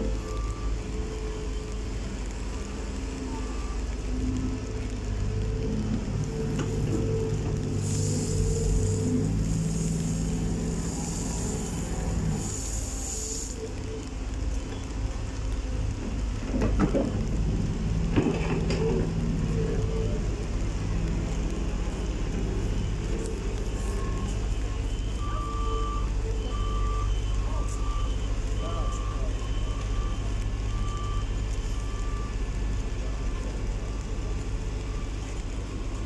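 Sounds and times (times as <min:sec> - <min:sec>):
reversing alarm beeping: 0:00.0 - 0:01.8, 0:22.7 - 0:33.2
diesel engine running: 0:00.0 - 0:36.0.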